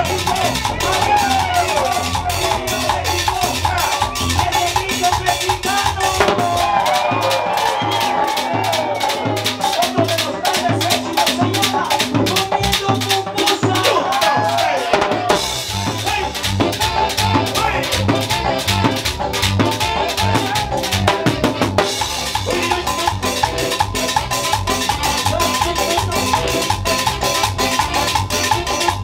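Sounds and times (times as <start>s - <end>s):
drums: 0.0s - 29.0s
electric bass: 0.0s - 29.0s
electric guitar: 0.0s - 29.0s
hand percussion: 0.0s - 29.0s
saxophones: 15.3s - 29.0s.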